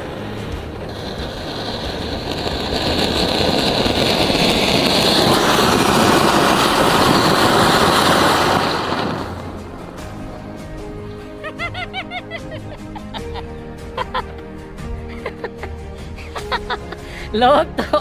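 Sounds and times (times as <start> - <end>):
fountain firecracker hissing: 0.0 - 12.2.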